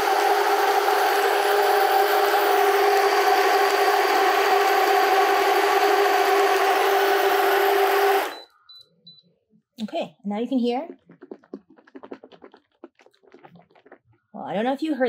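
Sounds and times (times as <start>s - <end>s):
blender motor whining: 0.0s - 8.5s.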